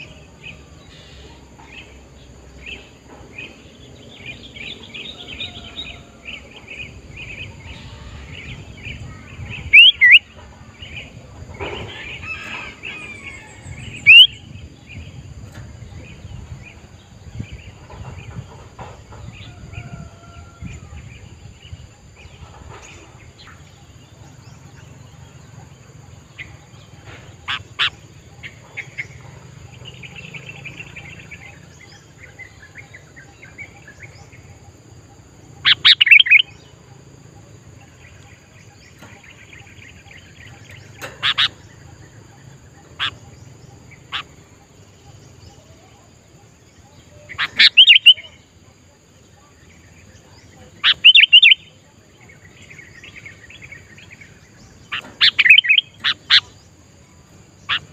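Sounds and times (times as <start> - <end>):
other birds chirping: 0.0 - 57.9
bulbul whistled calls: 9.6 - 10.3, 11.8 - 14.5, 35.6 - 36.6, 46.8 - 48.5, 50.6 - 51.8, 54.9 - 56.6.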